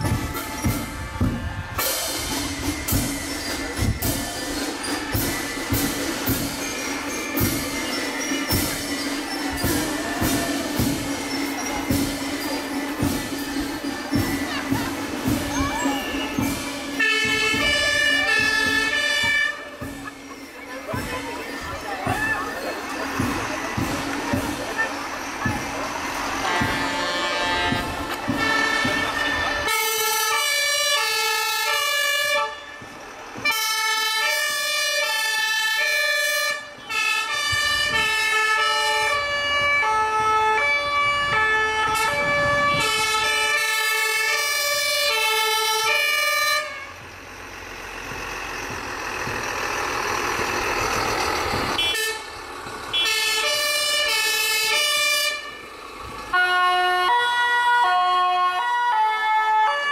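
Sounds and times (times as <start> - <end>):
engine and road noise: 0.0 - 59.9
two-tone fire engine sirens: 0.0 - 59.9.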